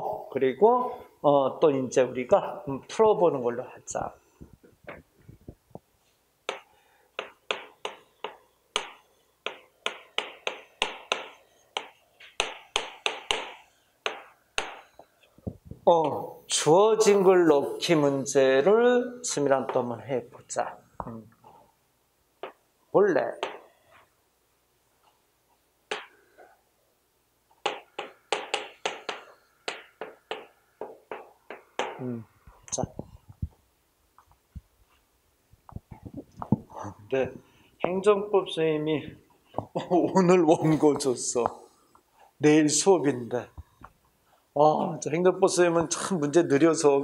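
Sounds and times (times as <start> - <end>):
chalk tapping on blackboard: 6.4 - 15.1, 22.4 - 22.6, 23.3 - 23.7, 25.9 - 26.2, 27.5 - 32.1.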